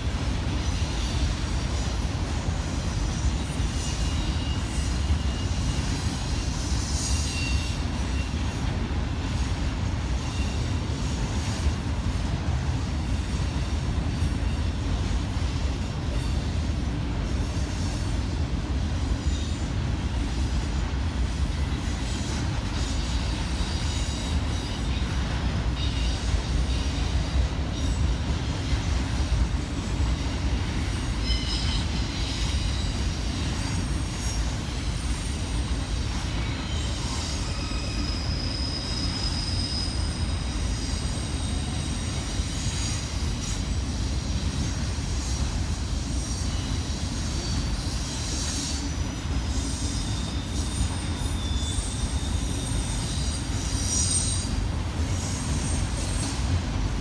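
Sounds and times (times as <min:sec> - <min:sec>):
train wheels rumbling on rail: 0:00.0 - 0:57.0
high-pitched wheel squeals: 0:00.8 - 0:08.5, 0:30.8 - 0:56.6.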